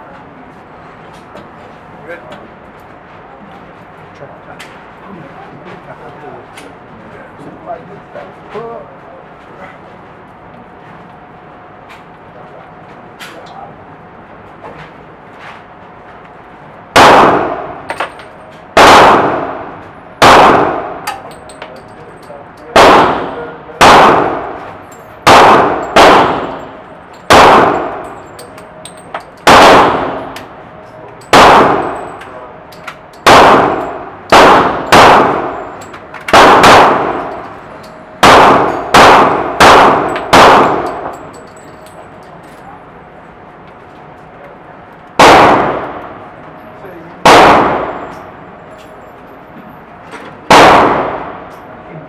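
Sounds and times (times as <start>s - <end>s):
rifle shots echoing: 16.9s - 17.9s, 18.8s - 21.2s, 22.7s - 28.1s, 29.4s - 30.5s, 31.3s - 32.2s, 33.2s - 37.6s, 38.2s - 41.3s, 45.2s - 46.2s, 47.2s - 48.1s, 50.5s - 51.5s.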